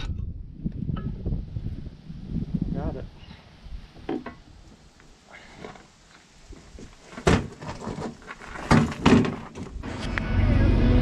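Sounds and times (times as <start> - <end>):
metallic knocks and clanks: 7.2 - 9.9.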